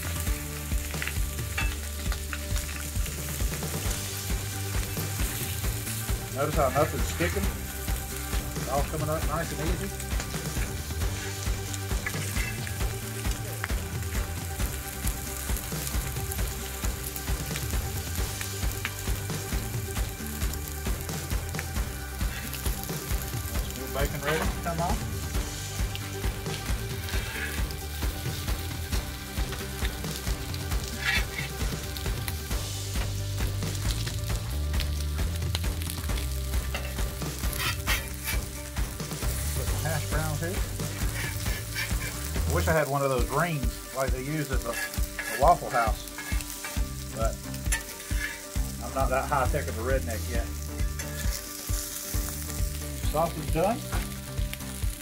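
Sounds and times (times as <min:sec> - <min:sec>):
meat sizzling on a griddle: 0:00.0 - 0:55.0
metal spatula scraping and tapping: 0:31.0 - 0:31.5, 0:37.6 - 0:38.5, 0:44.7 - 0:46.8, 0:47.7 - 0:48.6.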